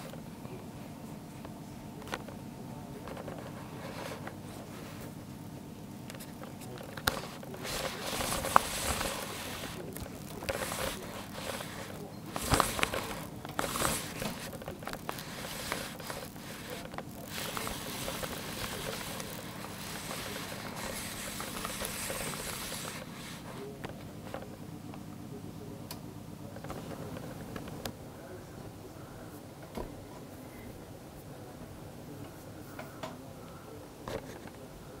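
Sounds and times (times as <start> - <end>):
camera handling rustling: 6.1 - 23.2.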